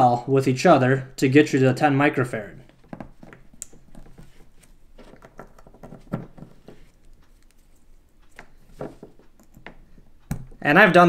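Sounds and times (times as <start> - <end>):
connectors clicking onto terminals: 2.6 - 10.6.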